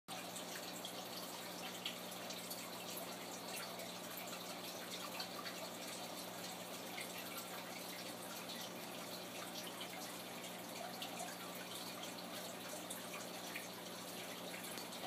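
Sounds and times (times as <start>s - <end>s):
small irregular ticks: 0.1s - 15.0s
water trickling and dripping: 0.1s - 15.0s.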